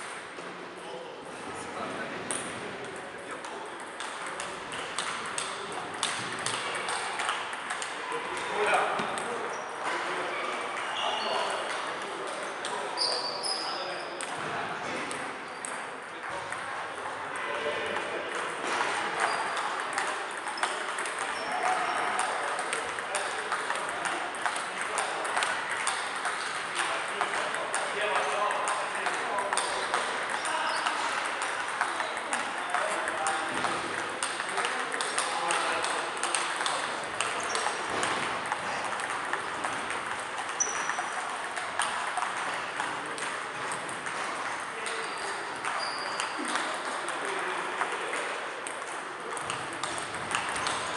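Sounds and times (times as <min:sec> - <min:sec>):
background noise: 0:00.0 - 0:50.9
hubbub of voices: 0:00.0 - 0:50.9
distant ping pong ticks: 0:02.3 - 0:09.3, 0:18.0 - 0:50.9
table tennis balls clicking: 0:02.3 - 0:09.4, 0:10.6 - 0:17.2, 0:17.9 - 0:50.9.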